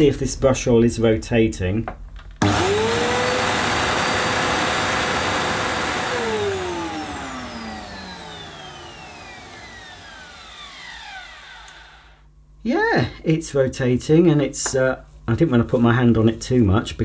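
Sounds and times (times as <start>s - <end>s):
vacuum cleaner winding down: 2.4s - 12.2s.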